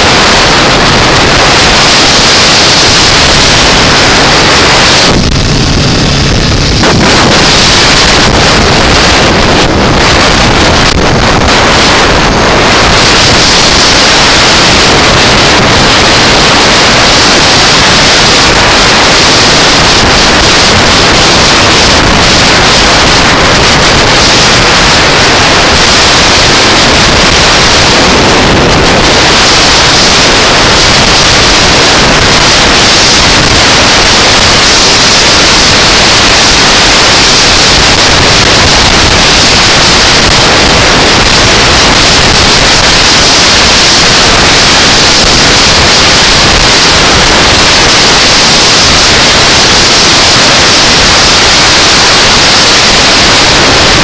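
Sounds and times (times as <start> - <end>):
wind noise on microphone: 0.0 - 54.0.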